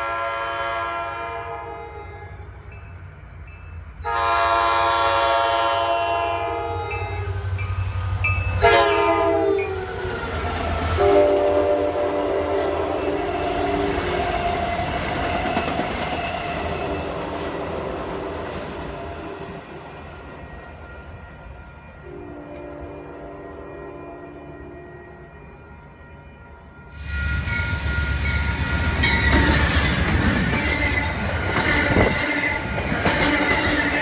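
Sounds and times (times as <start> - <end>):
train horn blasts: 0.0 - 2.6, 4.0 - 7.6, 8.6 - 9.9, 10.9 - 14.0, 22.0 - 25.5, 30.5 - 34.0
train wheels on rails: 2.7 - 23.2, 26.7 - 34.0.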